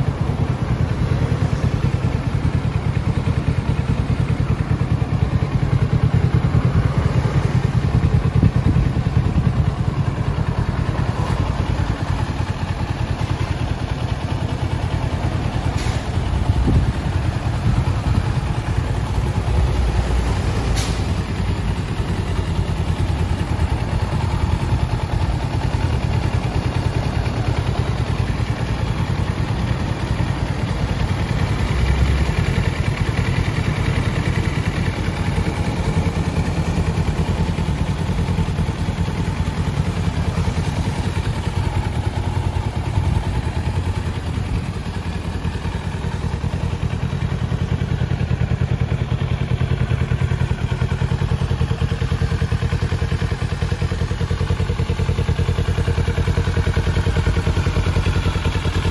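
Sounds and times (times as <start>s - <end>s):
motorcycle engine idling: 0.0s - 58.9s.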